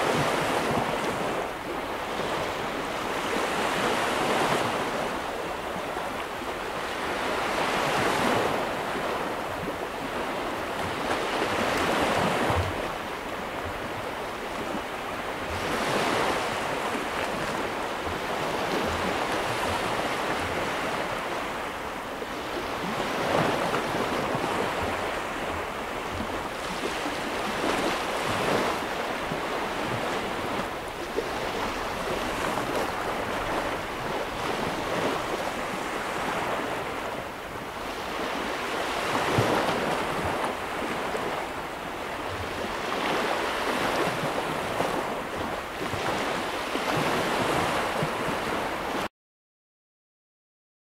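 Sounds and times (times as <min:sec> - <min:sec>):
surf washing onto sandy beach: 0:10.0 - 0:49.0.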